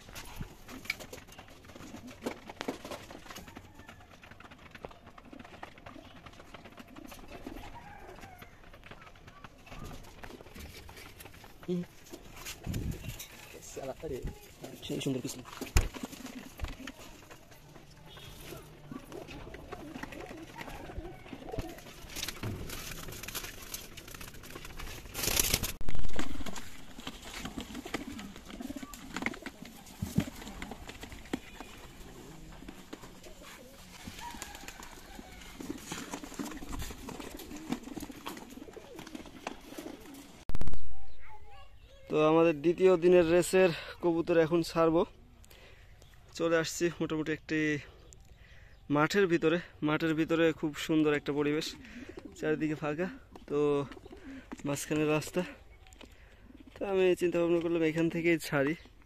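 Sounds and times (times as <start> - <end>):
pigeon cooing: 16.0 - 22.2, 26.2 - 40.4, 53.2 - 54.6.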